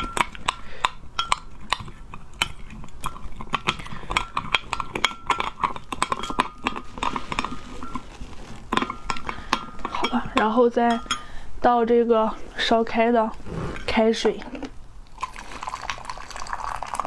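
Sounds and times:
metal spoon clinking on glass: 0:01.2 - 0:01.6, 0:02.4 - 0:08.1, 0:08.8 - 0:11.3.

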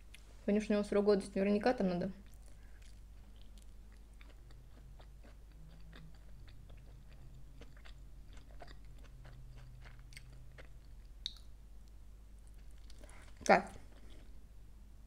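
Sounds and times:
low electrical hum: 0:00.0 - 0:15.0
chewing crunchy chip: 0:02.2 - 0:11.5, 0:12.4 - 0:14.4.

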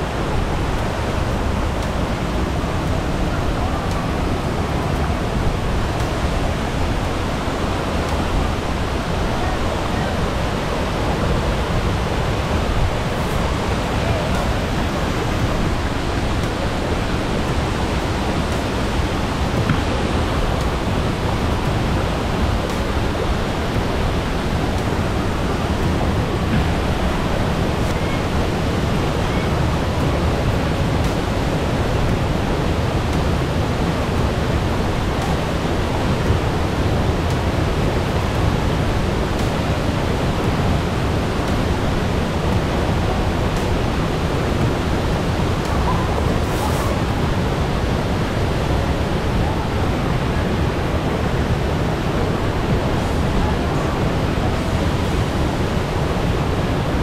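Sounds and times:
river running over boulders: 0:00.0 - 0:57.0.

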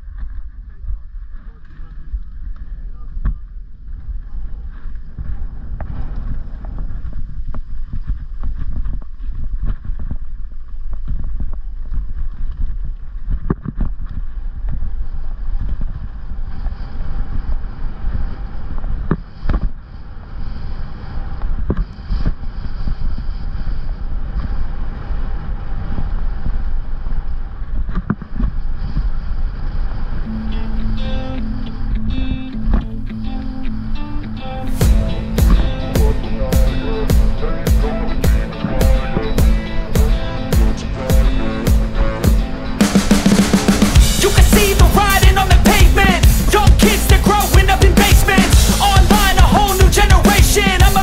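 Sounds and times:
wind buffeting microphone: 0:00.0 - 0:34.1
tyres rumbling on dirt: 0:34.8 - 0:51.0.

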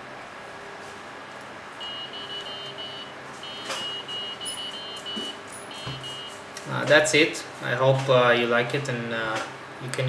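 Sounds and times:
short high electronic beeps: 0:01.8 - 0:06.4.

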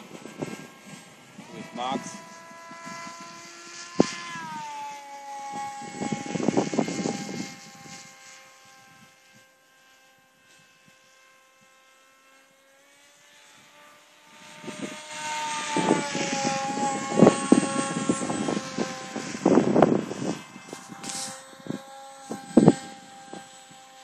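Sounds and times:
model airplane motor whine: 0:00.0 - 0:24.0.

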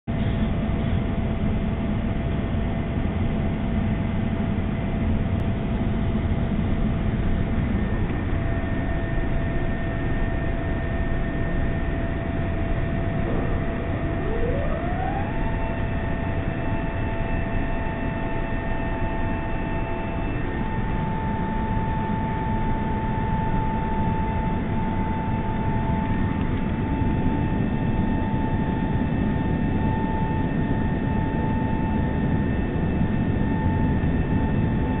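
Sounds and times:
engine and airflow rush: 0:00.1 - 0:35.0
faint steady whines: 0:00.1 - 0:35.0.

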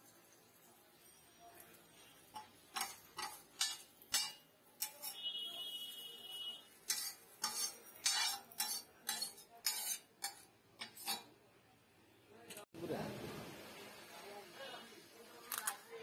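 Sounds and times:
metal spatula scraping griddle: 0:01.7 - 0:11.4.

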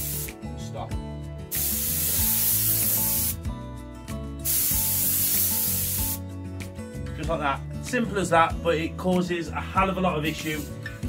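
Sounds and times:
spray gun air hissing: 0:00.0 - 0:00.3, 0:01.5 - 0:03.4, 0:04.4 - 0:06.2.

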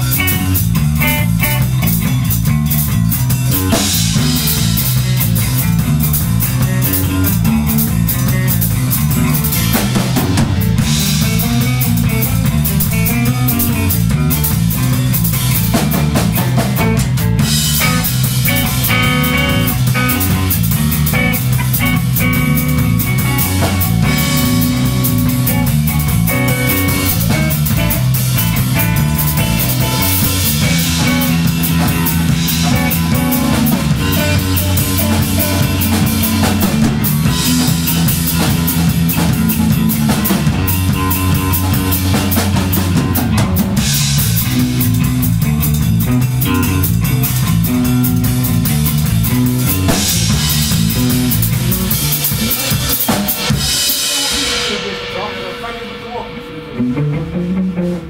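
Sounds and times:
drum kit playing: 0:00.0 - 0:58.0
rock guitar: 0:00.0 - 0:58.0.

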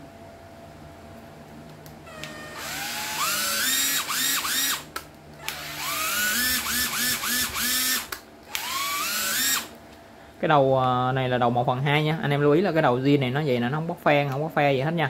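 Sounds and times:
impact wrench motor whine: 0:02.1 - 0:09.8.

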